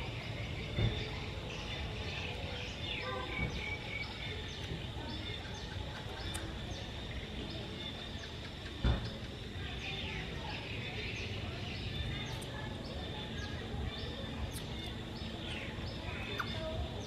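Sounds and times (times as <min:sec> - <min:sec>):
outdoor background noise: 0:00.0 - 0:17.0
small birds chirping: 0:00.0 - 0:17.0
thump: 0:08.8 - 0:09.1.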